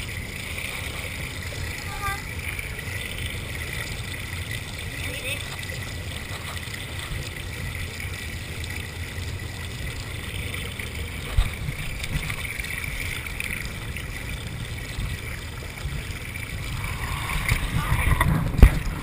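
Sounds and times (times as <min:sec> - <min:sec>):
low rumble with hiss: 0:00.0 - 0:19.0.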